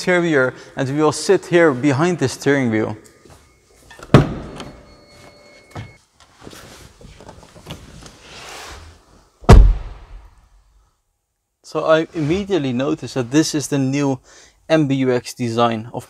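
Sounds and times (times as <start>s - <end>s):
clothes rustling against seat: 6.0s - 9.3s.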